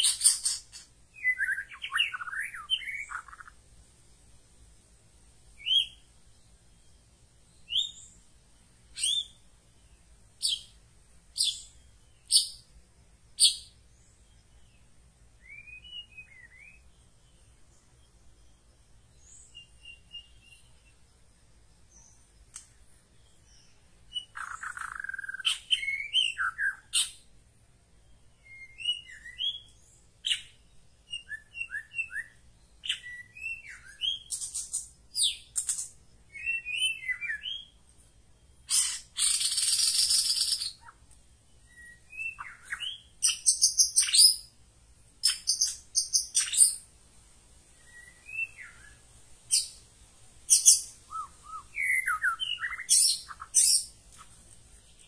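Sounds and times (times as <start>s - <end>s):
songbird singing: 0.0s - 55.0s
harsh rasping bird call: 38.7s - 40.9s.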